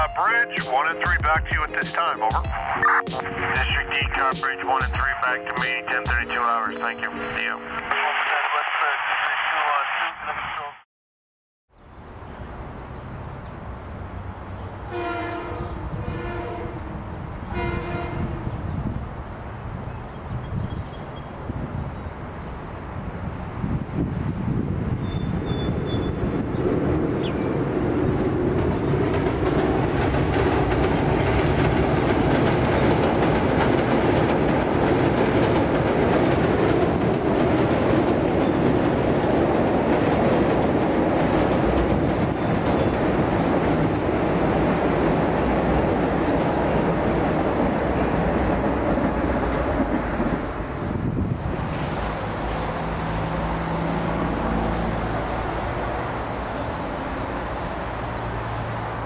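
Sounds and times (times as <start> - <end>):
train wheels on rails: 27.7 - 59.0.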